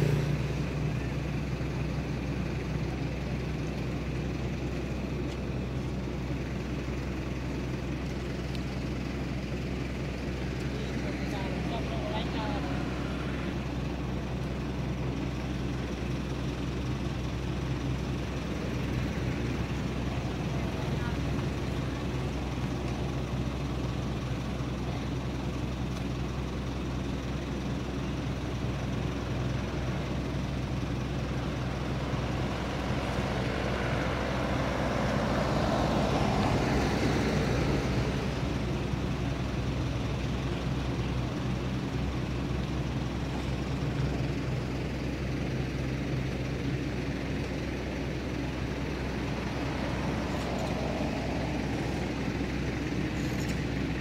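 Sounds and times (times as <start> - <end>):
vehicle passing: 0.0 - 0.6, 31.7 - 38.6, 48.9 - 53.2
road traffic rumble: 0.0 - 54.0.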